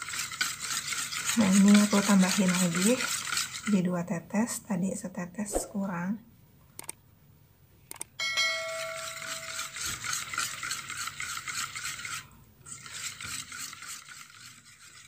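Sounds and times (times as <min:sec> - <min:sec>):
utensil scraping bowl: 0:00.0 - 0:03.9, 0:08.7 - 0:15.0
bowl ringing note: 0:08.2 - 0:09.7.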